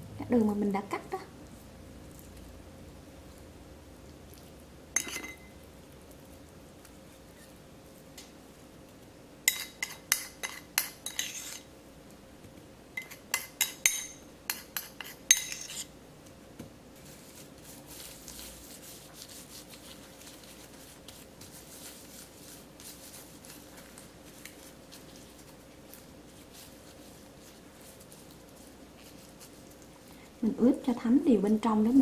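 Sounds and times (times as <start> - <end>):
metal spoon clinking on ceramic bowl: 5.0 - 5.5, 9.5 - 11.6, 13.0 - 15.8
gloved hand rustling: 17.0 - 30.0.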